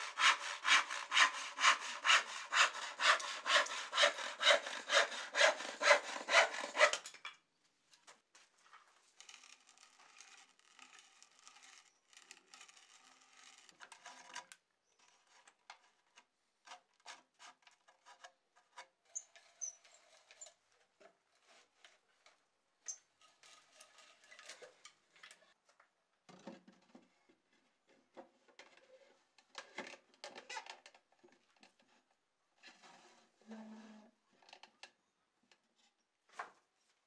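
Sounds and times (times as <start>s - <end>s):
auger bit boring wood: 0.0s - 7.0s.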